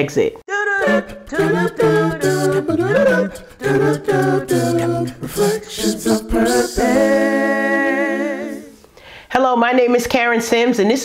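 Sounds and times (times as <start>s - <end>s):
person singing a cappella: 0.5s - 8.9s.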